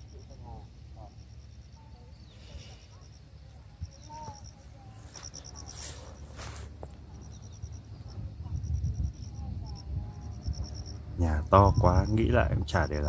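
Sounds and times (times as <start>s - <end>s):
crickets chirping: 0.0s - 13.0s
wind rumble on microphone: 3.5s - 13.0s
brief rustle: 5.1s - 6.8s.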